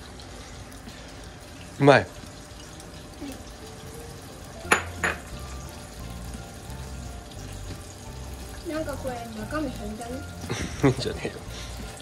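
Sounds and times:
kitchenware clinks: 0:04.7 - 0:05.3.

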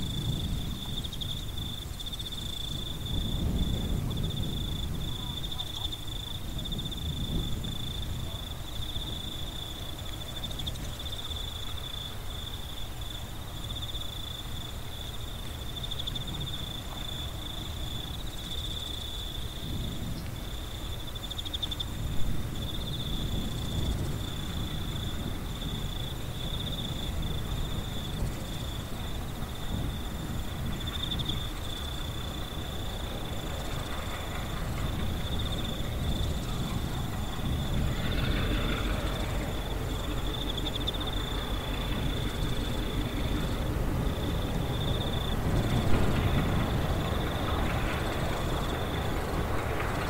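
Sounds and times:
crickets chirping: 0:00.0 - 0:50.0
low rumble: 0:22.0 - 0:50.0.

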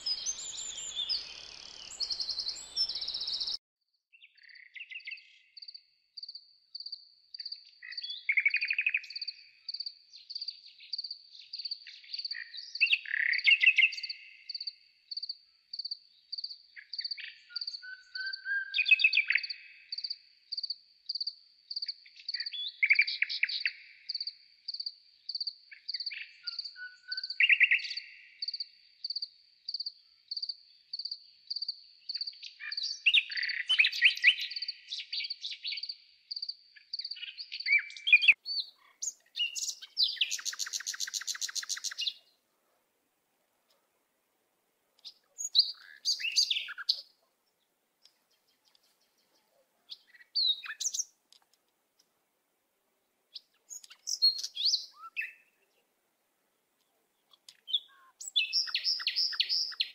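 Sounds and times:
lower falling bird notes: 0:00.0 - 0:03.6
songbirds singing trills: 0:00.0 - 0:42.4, 0:45.0 - 0:47.3, 0:48.0 - 0:51.2, 0:53.3 - 0:55.8, 0:56.6 - 0:59.9.

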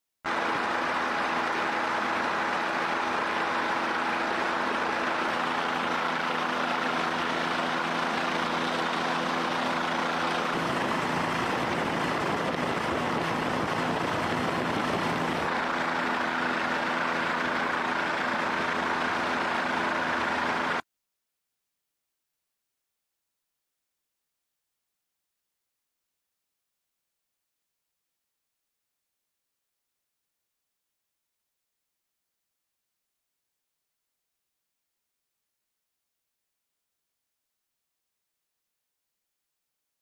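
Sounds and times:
helicopter engine and rotor noise: 0:00.3 - 0:20.8
rough rushing noise: 0:00.6 - 0:20.8.

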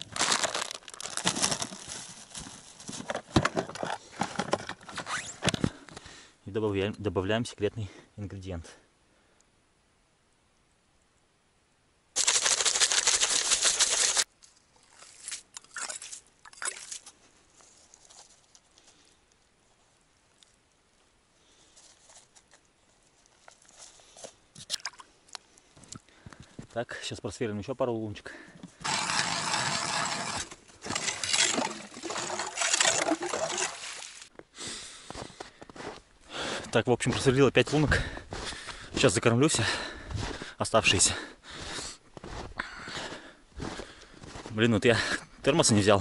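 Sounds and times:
plastic container rattling: 0:00.0 - 0:05.0, 0:12.2 - 0:14.3, 0:28.8 - 0:34.1
ice auger grinding ice: 0:28.8 - 0:34.2.

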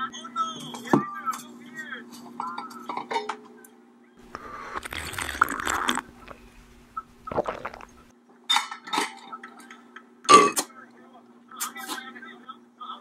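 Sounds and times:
person drinking from water bottle: 0:04.2 - 0:08.1.

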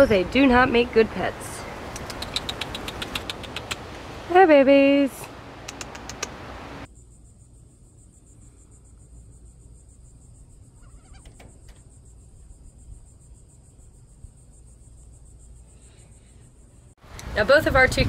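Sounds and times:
light clicks: 0:01.9 - 0:03.8, 0:05.6 - 0:06.4.

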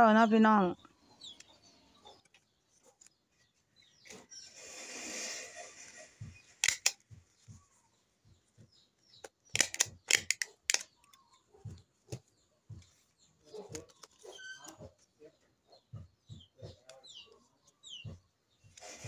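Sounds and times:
stapler snapping shut: 0:06.6 - 0:07.0, 0:09.5 - 0:10.9.

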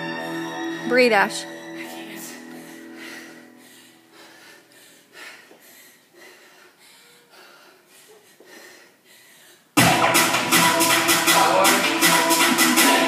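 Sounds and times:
loud music: 0:00.0 - 0:03.0, 0:09.8 - 0:13.0
woman breathing hard: 0:01.8 - 0:09.8.

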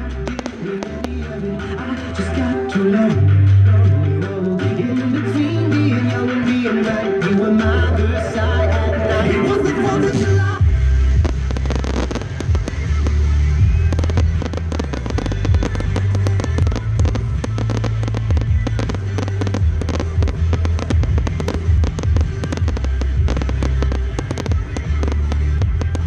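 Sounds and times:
fireworks crackling and popping: 0:00.0 - 0:26.0
music with heavy bass: 0:00.0 - 0:26.0.

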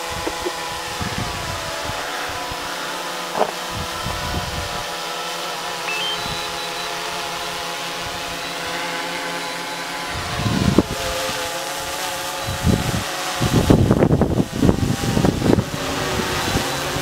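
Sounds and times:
wind buffeting microphone: 0:00.0 - 0:02.7, 0:10.0 - 0:17.0
drone propellers buzzing: 0:00.0 - 0:17.0.

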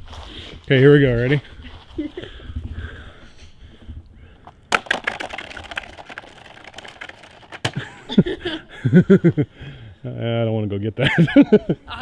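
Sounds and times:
clicks and cracks on ice: 0:04.7 - 0:07.8.

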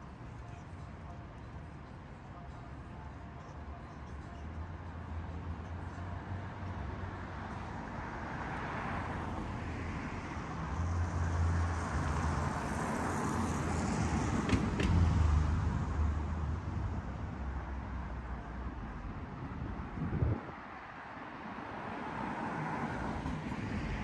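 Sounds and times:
cars driving past: 0:06.2 - 0:24.0.

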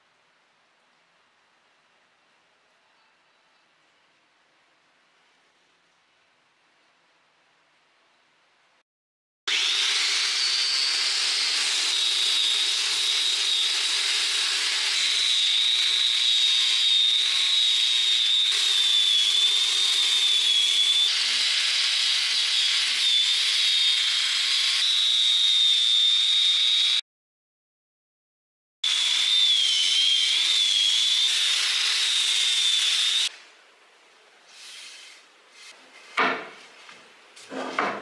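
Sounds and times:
power sander whining: 0:09.5 - 0:27.0, 0:28.9 - 0:33.3
sandpaper rasping on wood: 0:34.5 - 0:35.8.

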